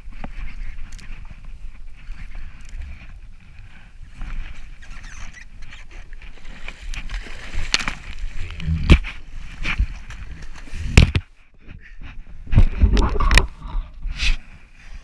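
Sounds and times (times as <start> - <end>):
water lapping: 0.5 - 10.9.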